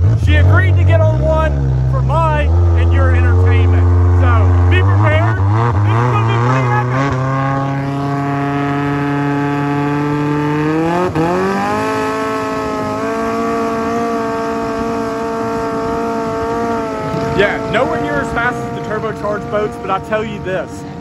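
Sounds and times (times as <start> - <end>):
boat engine revving high: 0.0 - 21.0.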